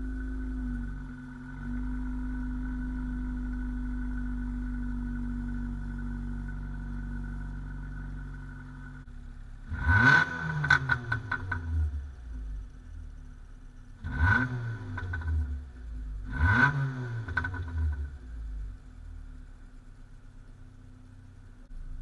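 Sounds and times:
car engine idling: 0.0s - 22.0s
exhaust crackles: 0.0s - 22.0s
engine revving: 9.6s - 12.6s, 14.0s - 18.5s.

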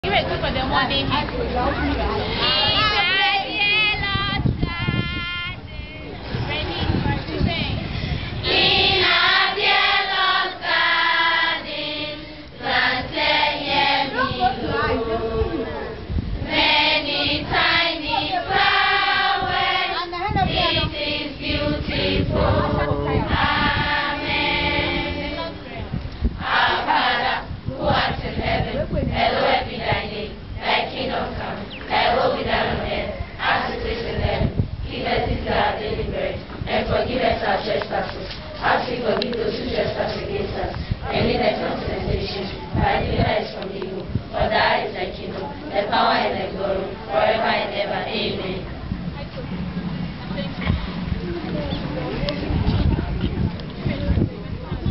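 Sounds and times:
girls singing together: 8.3s - 25.7s, 26.4s - 48.7s.

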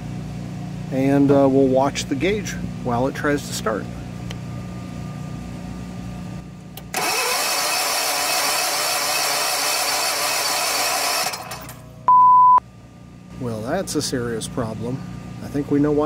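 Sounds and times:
generator engine cranking: 6.8s - 11.9s.

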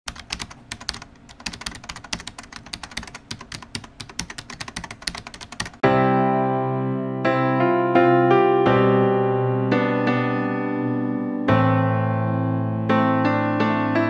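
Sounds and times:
computer keyboard typing: 0.1s - 5.8s
electric piano chord: 5.8s - 14.0s.

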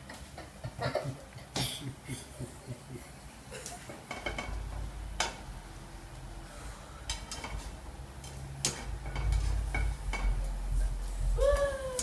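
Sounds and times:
spatulas scraping frying pan: 6.7s - 11.4s.

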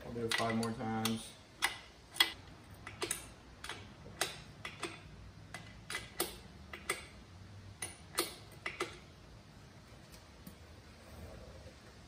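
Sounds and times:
wrench clicking: 0.2s - 7.2s, 7.8s - 9.1s.

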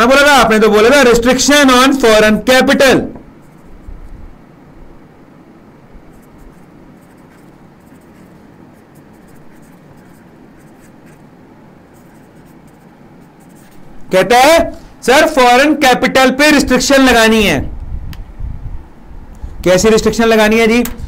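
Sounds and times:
pen scratching on paper: 3.4s - 3.9s, 6.1s - 13.9s.

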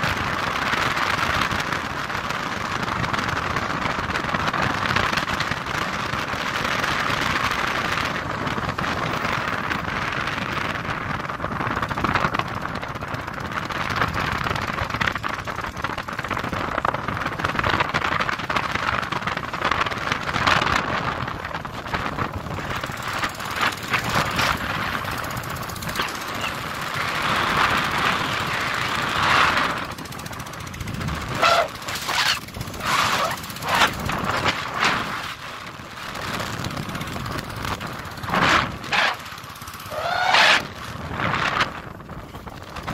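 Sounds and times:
wind buffeting: 0.0s - 42.9s
wind rush on microphone: 0.0s - 42.9s.

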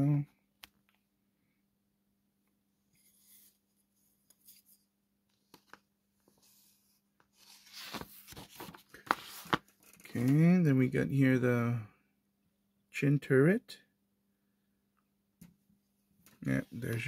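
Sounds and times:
paper booklet rustling: 3.0s - 10.4s
paper crinkles: 7.4s - 10.0s.

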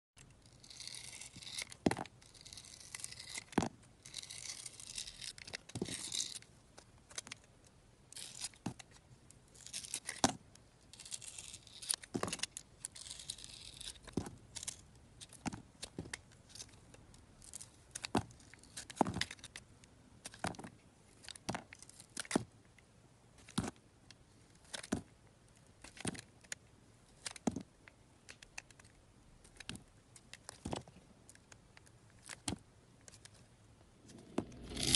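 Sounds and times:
knife scraping soap: 0.4s - 6.4s, 11.0s - 15.9s.

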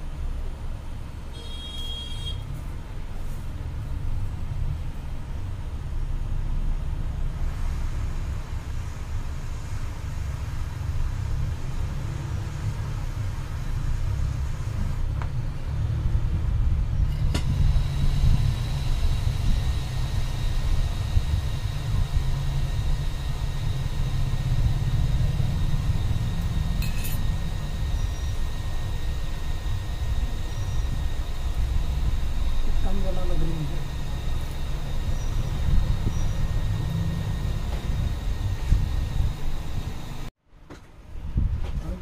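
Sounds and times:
hot air blower rumble: 0.0s - 40.3s
faint high whine: 17.0s - 40.3s.

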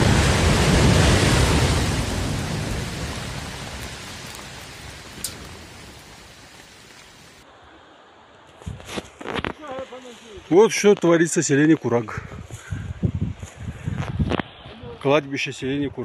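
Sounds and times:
rumble of falling rock: 0.0s - 7.4s.

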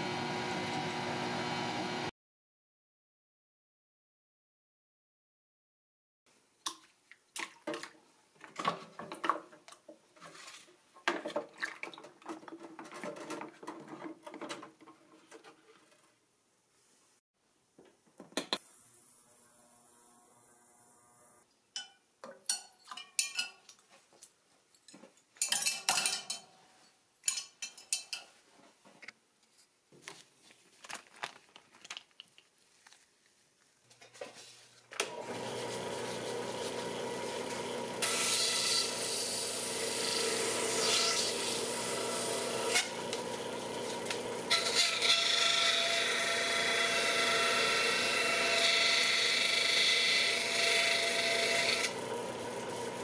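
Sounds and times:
drill press motor humming: 18.6s - 21.4s, 51.8s - 53.0s.

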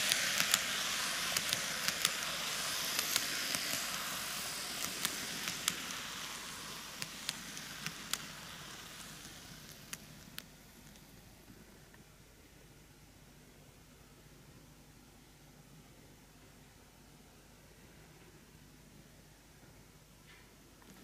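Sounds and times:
wheels clicking over rail joints: 0.0s - 10.1s
model train wheels and motor hiss: 0.0s - 13.4s, 20.3s - 21.0s.

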